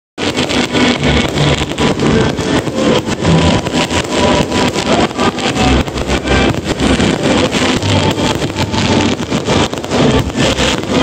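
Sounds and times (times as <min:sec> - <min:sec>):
fireworks bangs and crackles: 0:00.2 - 0:11.0.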